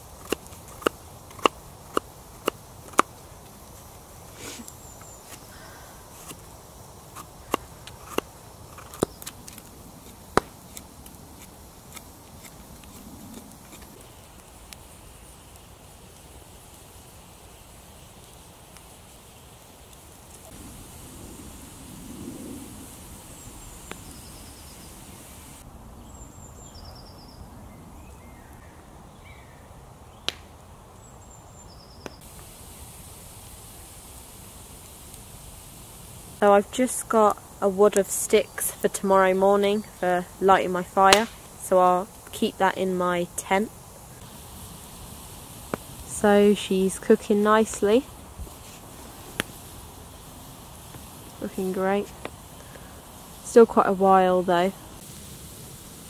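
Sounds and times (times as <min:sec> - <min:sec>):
campfire pops: 0:00.0 - 0:21.6, 0:22.6 - 0:25.6, 0:30.2 - 0:30.6, 0:32.0 - 0:56.0
steady outdoor hush: 0:00.0 - 0:56.0
knife whittling wood clicks: 0:00.2 - 0:03.1, 0:07.2 - 0:09.7.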